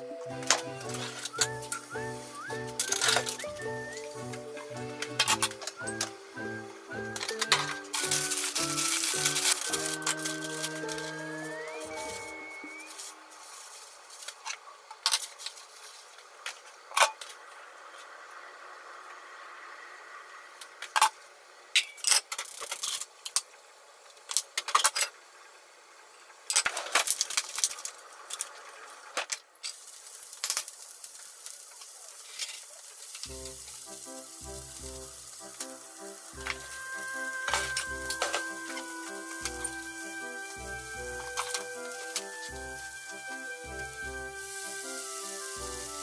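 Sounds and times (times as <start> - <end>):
faint steady hiss: 0.0 - 46.0
utensils and cookware clinking: 0.3 - 12.5, 32.3 - 46.0.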